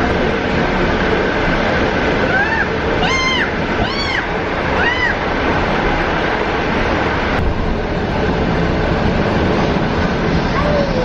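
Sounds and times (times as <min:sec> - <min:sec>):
train carriage rumble: 0:00.0 - 0:11.0
high squeals: 0:02.3 - 0:05.2.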